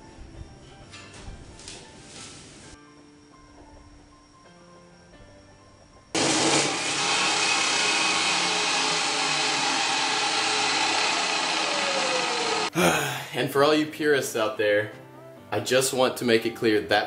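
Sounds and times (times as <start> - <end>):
faint background music: 0.0 - 6.2, 12.7 - 17.0
chop saw cutting metal: 6.2 - 12.7.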